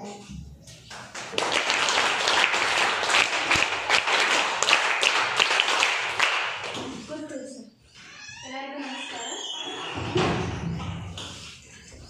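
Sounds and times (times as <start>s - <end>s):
audience applauding: 0.9s - 7.0s.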